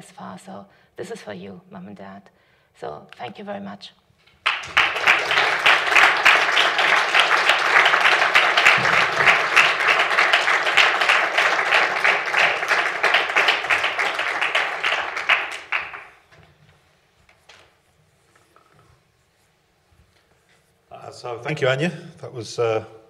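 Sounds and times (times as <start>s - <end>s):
audience applauding: 4.4s - 16.4s.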